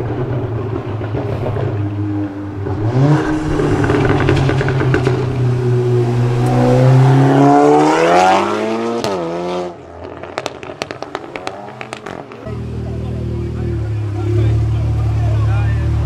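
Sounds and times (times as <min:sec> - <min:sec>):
car engine accelerating: 0:00.0 - 0:16.0
gear change crack: 0:02.6 - 0:07.3.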